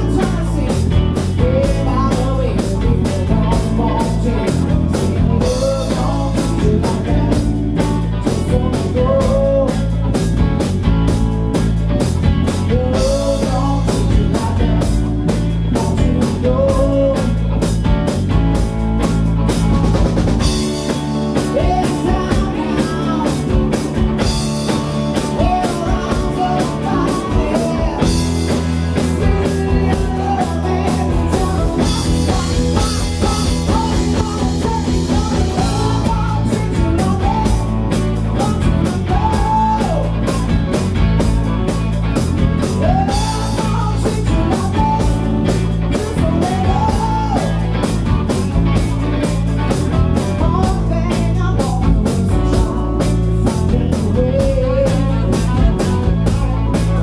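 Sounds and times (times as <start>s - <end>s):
woman singing lead: 0.0s - 10.2s, 12.4s - 17.8s, 20.4s - 41.4s, 42.6s - 48.9s, 49.7s - 57.0s
bass guitar: 0.0s - 57.0s
drum kit beat: 0.0s - 57.0s
electric guitars: 0.0s - 57.0s.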